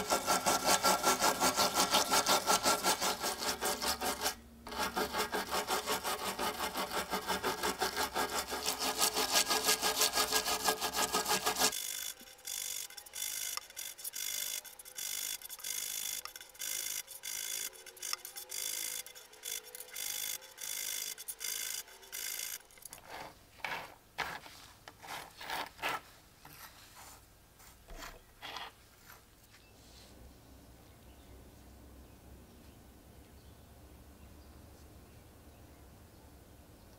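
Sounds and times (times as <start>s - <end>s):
brush scrubbing coins in metal tray: 8.1s - 25.8s.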